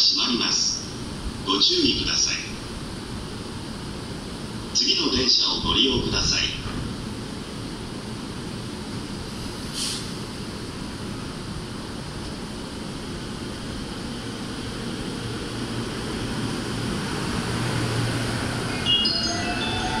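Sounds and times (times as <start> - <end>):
electric train running noise: 10.3 - 20.0
short rising high tones: 18.4 - 20.0.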